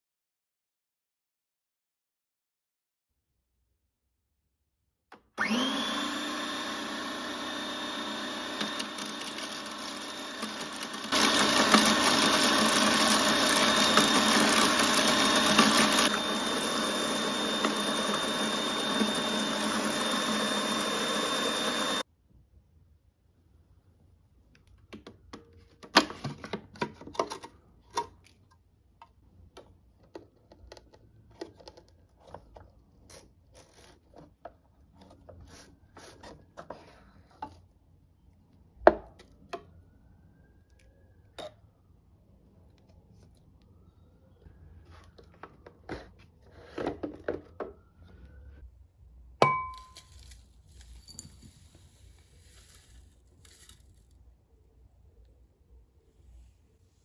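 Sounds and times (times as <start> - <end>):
food processor grinding: 5.4 - 22.1.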